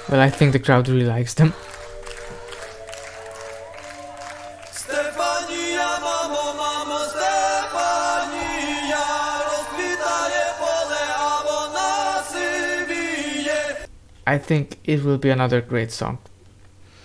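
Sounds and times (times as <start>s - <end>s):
man singing: 4.7s - 13.9s.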